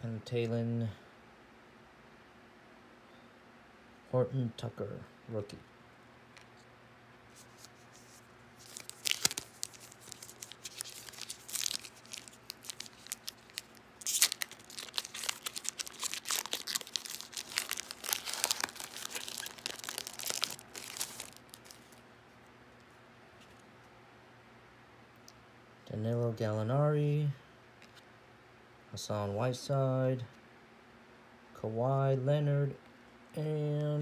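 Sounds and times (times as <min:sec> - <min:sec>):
foil wrapper tearing and crinkling: 0:08.6 - 0:22.0.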